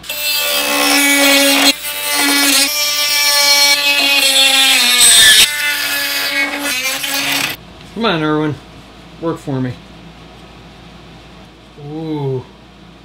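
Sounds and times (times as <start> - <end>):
rotary tool cutting plastic: 0.0 - 7.6.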